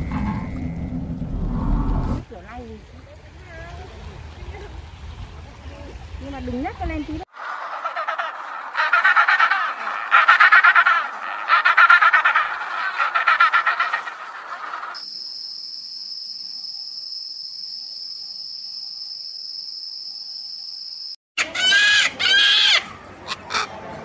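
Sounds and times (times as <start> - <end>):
loud harsh animal calls: 7.3 - 15.0, 21.4 - 23.8
pulsing gobbling bird call: 7.4 - 15.0.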